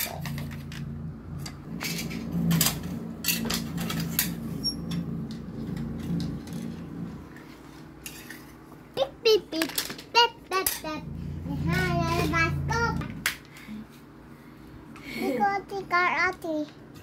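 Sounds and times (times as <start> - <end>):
low hum: 0.0 - 7.8, 10.8 - 13.8
plastic toy cars clicking: 9.5 - 10.9.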